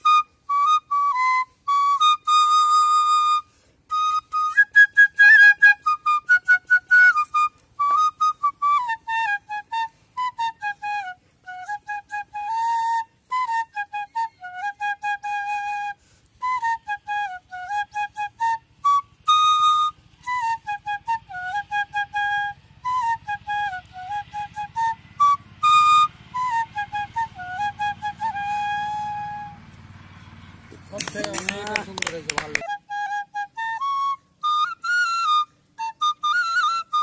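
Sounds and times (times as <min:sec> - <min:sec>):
bamboo flute melody: 0:00.0 - 0:29.9, 0:30.8 - 0:37.0.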